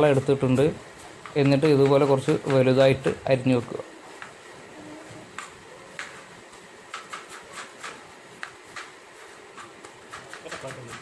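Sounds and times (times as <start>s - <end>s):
knife chopping on cutting board: 1.2s - 3.1s, 5.3s - 6.3s, 6.9s - 11.0s.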